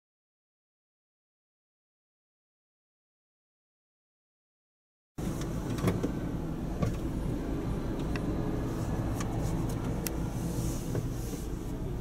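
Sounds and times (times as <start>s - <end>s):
car engine idling: 5.2s - 12.0s.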